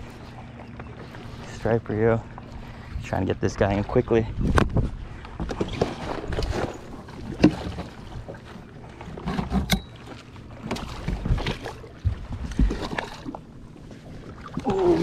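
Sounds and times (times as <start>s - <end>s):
water splashing: 5.6s - 15.0s.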